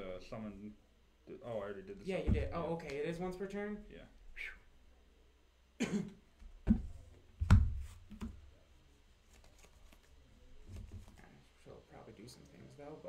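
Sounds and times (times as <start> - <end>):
person coughing: 5.8 - 6.2.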